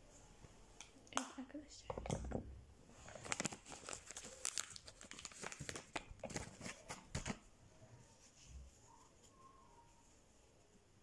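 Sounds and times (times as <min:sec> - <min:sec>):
faint rustling: 0:02.9 - 0:11.0
crinkling and crumpling wad: 0:03.0 - 0:07.5.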